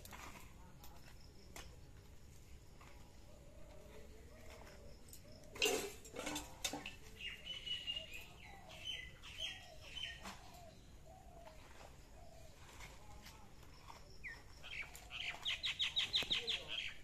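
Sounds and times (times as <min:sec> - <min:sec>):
small birds chirping: 0:06.8 - 0:17.0.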